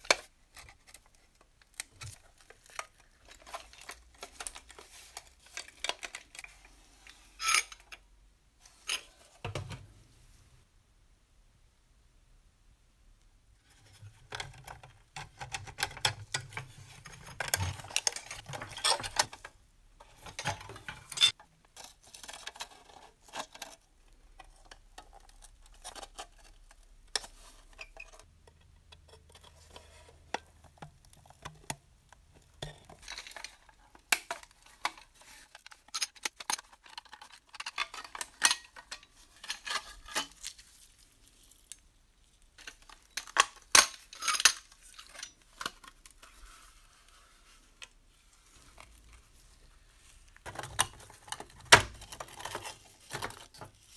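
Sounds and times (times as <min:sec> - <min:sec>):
tin toy parts clinking: 0:07.4 - 0:07.9.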